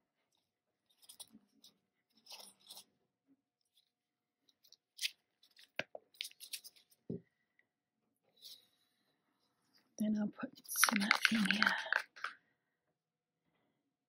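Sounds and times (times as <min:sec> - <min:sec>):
plastic cups clicking and crinkling: 0:10.6 - 0:12.4.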